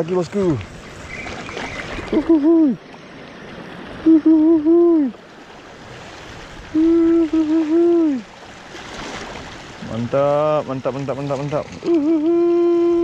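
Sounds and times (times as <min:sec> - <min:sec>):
sea water washing on rocks: 0:05.0 - 0:13.0.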